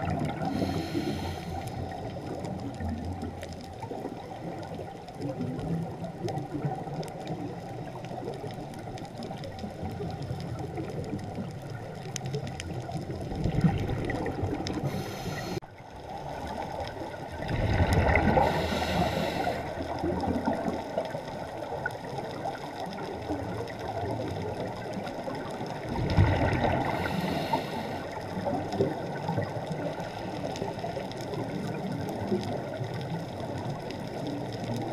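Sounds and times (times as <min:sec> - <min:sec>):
underwater hiss: 0:00.0 - 0:02.6, 0:13.7 - 0:15.6, 0:17.7 - 0:20.6, 0:26.2 - 0:31.5
faint clicks: 0:00.0 - 0:15.6, 0:17.8 - 0:34.9
gurgling regulator bubbles: 0:00.0 - 0:34.9.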